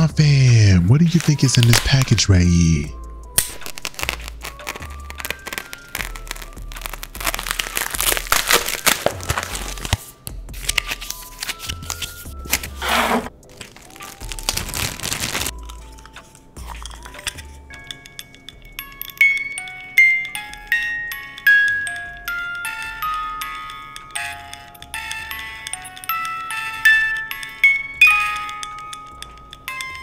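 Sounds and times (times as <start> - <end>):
packaging tearing and crinkling: 1.1 - 2.2, 3.4 - 10.0, 10.6 - 15.5.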